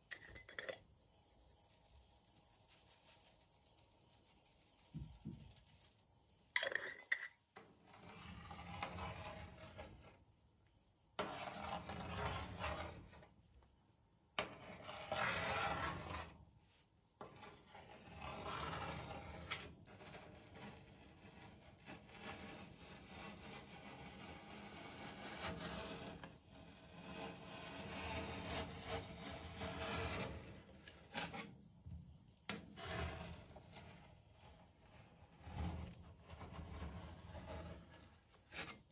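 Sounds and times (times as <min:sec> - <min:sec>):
metal spatula scraping ice cream: 0:07.6 - 0:10.3, 0:11.2 - 0:13.4, 0:14.4 - 0:16.5, 0:17.2 - 0:38.9.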